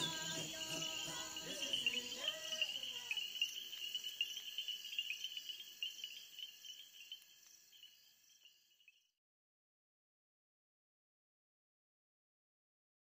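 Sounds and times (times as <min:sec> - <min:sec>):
background music: 0:00.0 - 0:02.7
crickets and insects trilling: 0:00.0 - 0:09.1.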